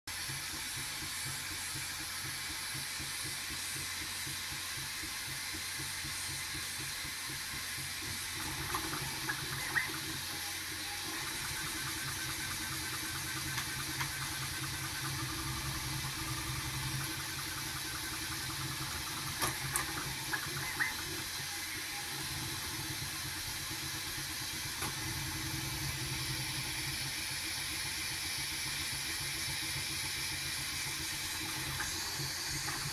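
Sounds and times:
fan hiss and hum: 0.1 - 32.9
stepper motors whining: 8.0 - 28.1, 29.0 - 32.9.

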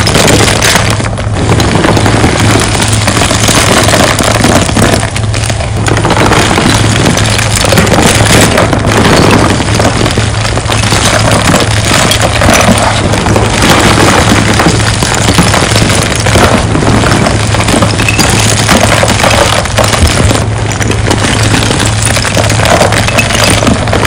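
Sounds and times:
chalk chunks crunching and clattering: 0.0 - 24.0.

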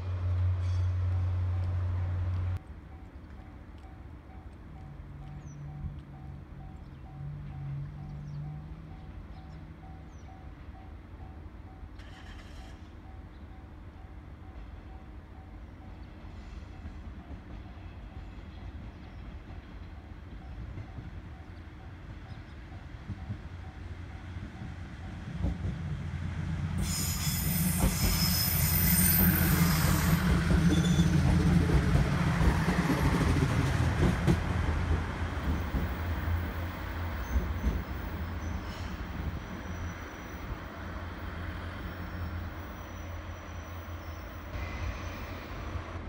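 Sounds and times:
diesel railcar engine rumble: 0.0 - 46.0
high-pitched wheel squeal: 26.8 - 31.2, 42.2 - 45.7.

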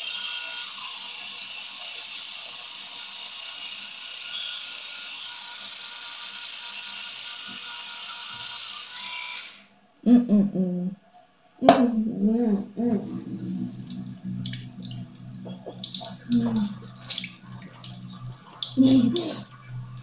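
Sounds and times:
electric toothbrush buzzing: 0.0 - 9.7, 13.4 - 20.0
person mumbling: 10.1 - 11.0, 11.6 - 17.9, 18.6 - 19.6.

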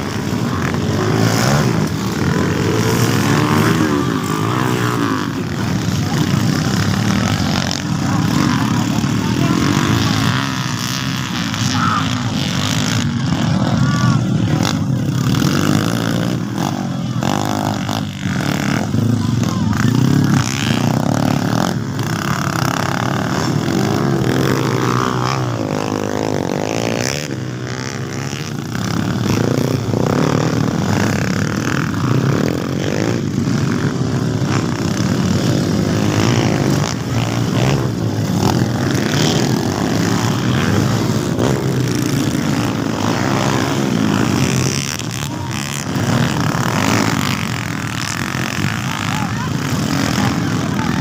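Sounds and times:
dirt bike engines revving: 0.0 - 51.0.

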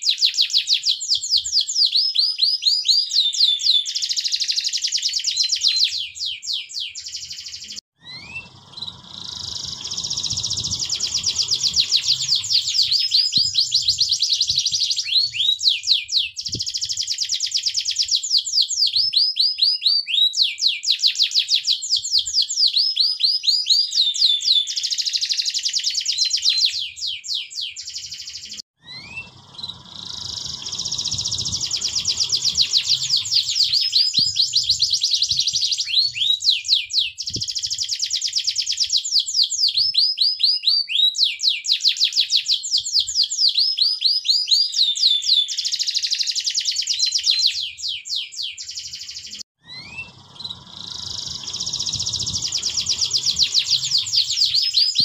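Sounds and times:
canary singing: 0.0 - 38.9, 39.8 - 55.0
faint low rumble: 8.1 - 12.9, 28.9 - 33.7, 49.7 - 54.5.

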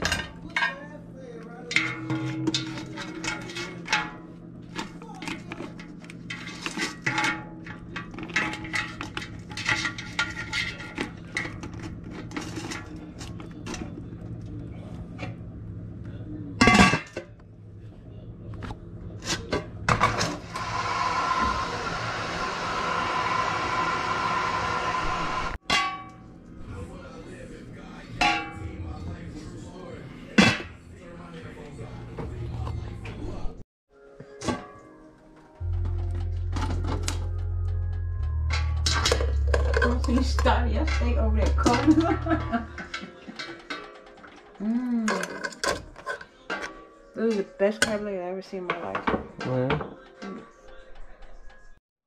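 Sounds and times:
pot lid clanging: 1.7 - 4.3.

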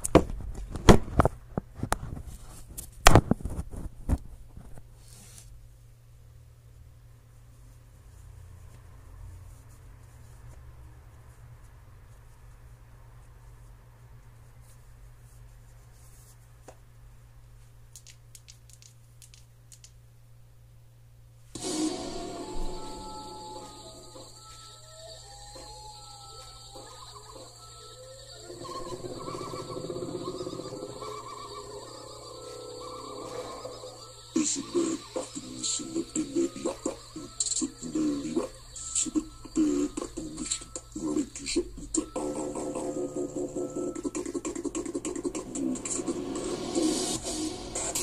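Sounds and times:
low hum: 21.6 - 48.0.

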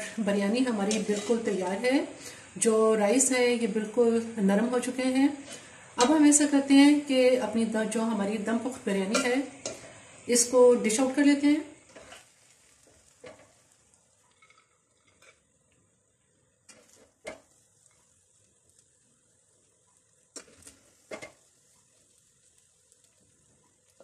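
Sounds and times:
metal spoon scraping pot: 0.8 - 1.6, 11.9 - 12.3.

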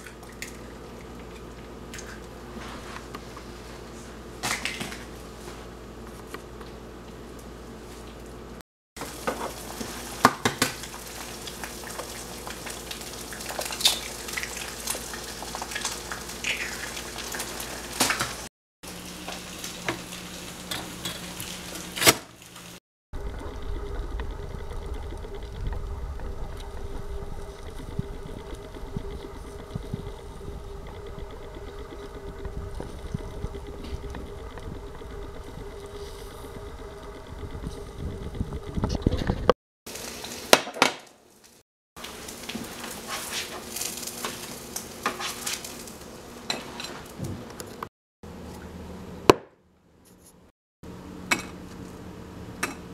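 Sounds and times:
eggs sizzling in a skillet: 9.0 - 35.4, 39.9 - 47.1
low hum: 23.2 - 39.6
spatula scraping: 42.5 - 44.4.

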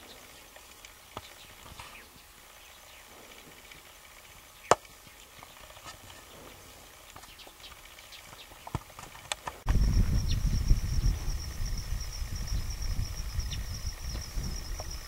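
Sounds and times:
loud low rumble: 9.7 - 14.8.

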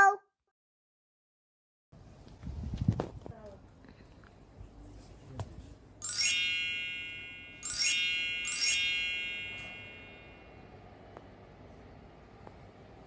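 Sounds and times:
magic sparkle chimes: 6.0 - 10.5.

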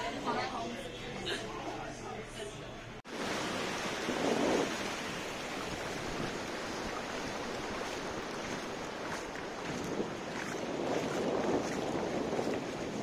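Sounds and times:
ocean surf breaking: 3.1 - 13.0
wind on microphone: 3.5 - 13.0.

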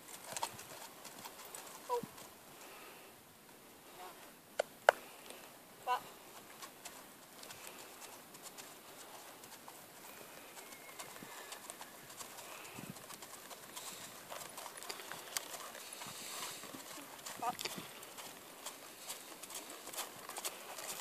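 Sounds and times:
horse hoofbeats on dirt: 0.0 - 2.8, 5.9 - 21.0
bird calls: 10.1 - 12.7.

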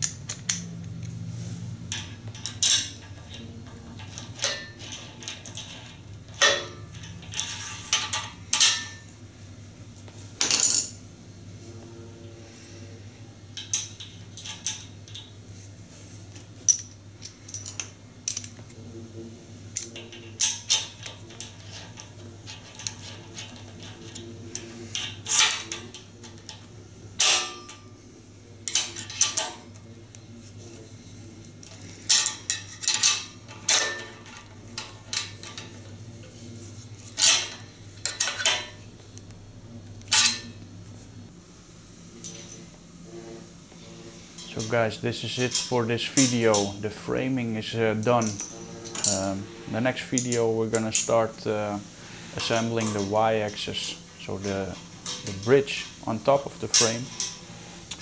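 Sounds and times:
metallic clicks of small parts: 0.0 - 1.2, 16.3 - 18.7.

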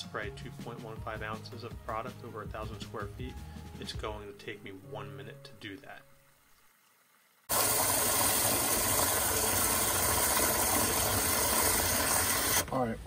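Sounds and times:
water stream churning in bucket: 7.5 - 12.7.

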